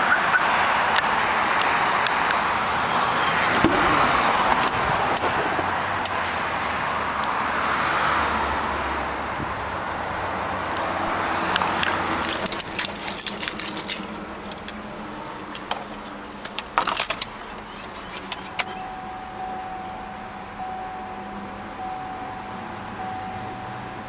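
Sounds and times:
keys jangling and clicking: 11.8s - 14.8s, 15.5s - 18.8s
dashboard warning tone: 18.6s - 24.0s.

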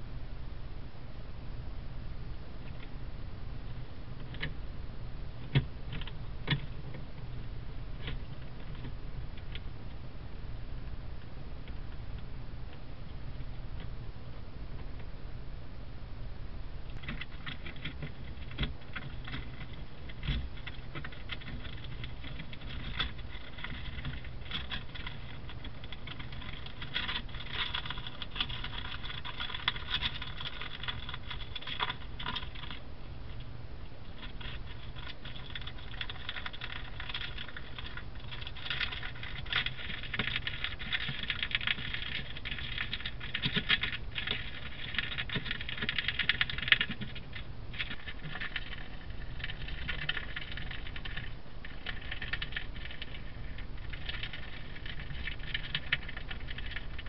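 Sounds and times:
vole gnawing paper: 17.0s - 32.8s, 34.1s - 57.0s.

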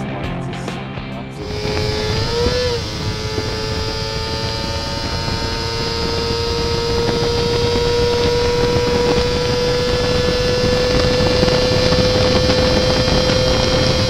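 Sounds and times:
motorcycle engine high revs whine: 1.3s - 14.0s.

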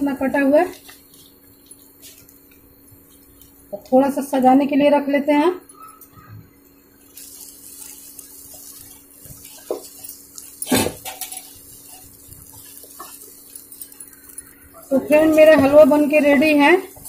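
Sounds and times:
spatula scraping a pan: 7.7s - 14.4s.

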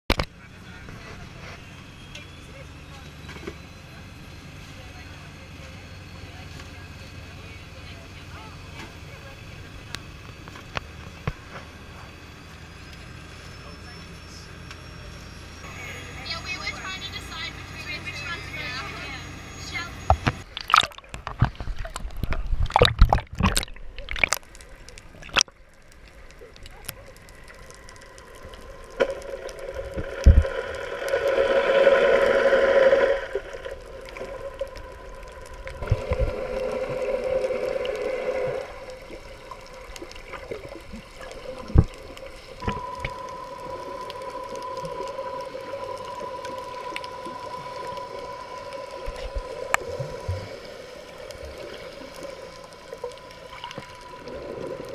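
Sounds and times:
faint hum: 0.1s - 54.9s
underwater gurgling and sloshing: 14.8s - 54.9s
water splashing: 18.1s - 54.9s.

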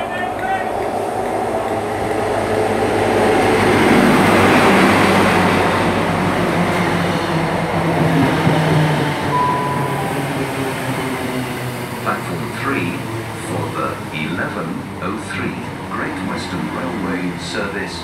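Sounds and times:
high steady tone: 9.3s - 11.4s
train diesel engine running: 9.3s - 18.0s.

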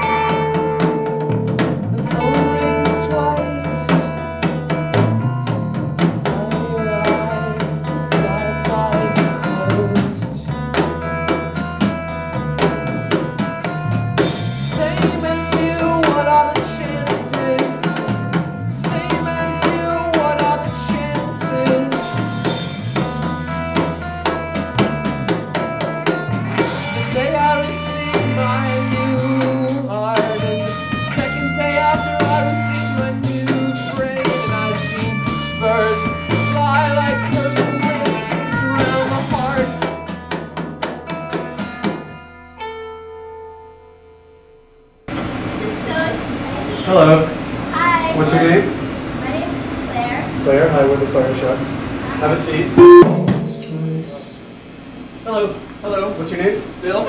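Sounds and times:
drum kit beat: 0.0s - 42.4s, 52.8s - 55.8s
bass line: 0.0s - 42.6s, 51.2s - 57.0s
guitar: 0.0s - 57.0s.

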